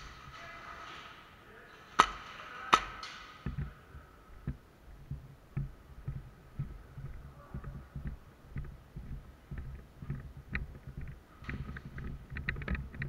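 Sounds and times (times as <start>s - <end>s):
airsoft pistol shots: 2.0s - 3.4s
footsteps on concrete floor: 4.4s - 12.3s.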